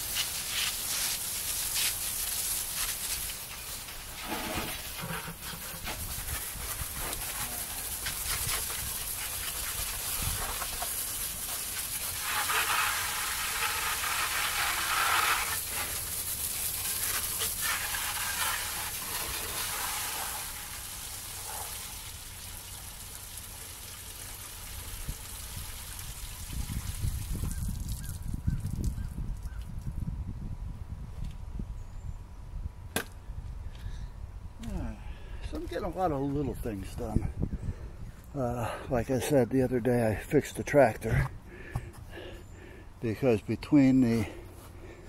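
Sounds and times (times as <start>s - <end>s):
water spraying from hose: 0.0s - 29.0s.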